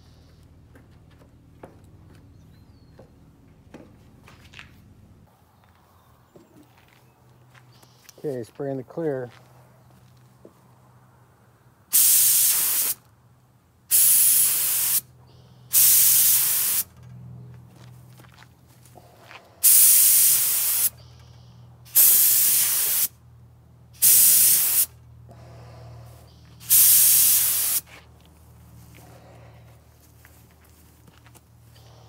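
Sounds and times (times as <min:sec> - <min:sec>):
spray gun hissing: 0:11.9 - 0:13.0, 0:13.9 - 0:15.1, 0:15.7 - 0:16.9, 0:19.6 - 0:21.0, 0:21.9 - 0:23.1, 0:24.0 - 0:24.9, 0:26.6 - 0:27.9.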